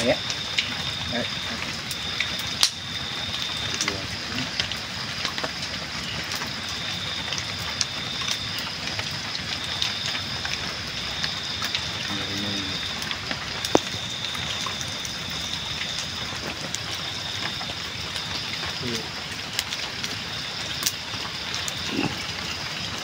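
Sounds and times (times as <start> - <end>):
campfire crackling: 0.0 - 23.0.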